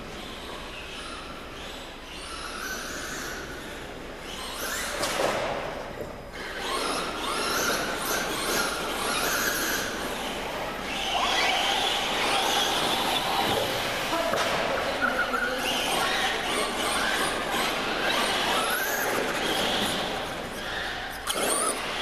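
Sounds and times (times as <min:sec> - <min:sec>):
racing engines whining past: 0:06.4 - 0:22.0.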